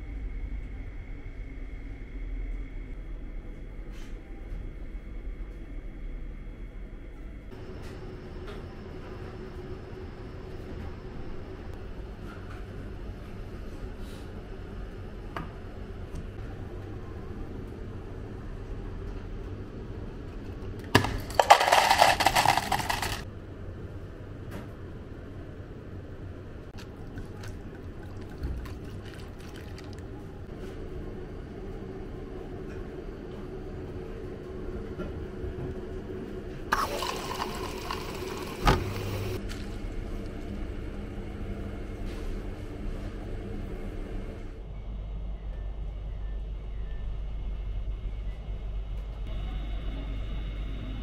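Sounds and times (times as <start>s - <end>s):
steady low hum: 0.0s - 51.0s
ice cubes clattering into cup: 21.0s - 23.2s
drink pouring into plastic cup: 21.2s - 23.2s, 26.8s - 30.1s, 36.7s - 39.7s.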